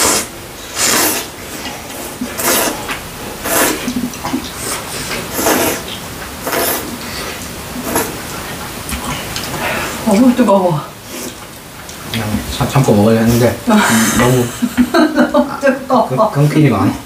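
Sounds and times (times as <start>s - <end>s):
noodles being slurped: 0.0s - 10.0s.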